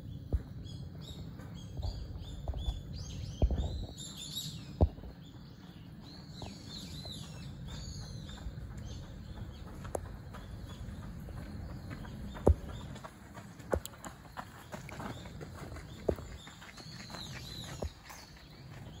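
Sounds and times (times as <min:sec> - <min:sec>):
small birds chirping: 0:00.0 - 0:19.0
steady low rumble: 0:04.6 - 0:16.5.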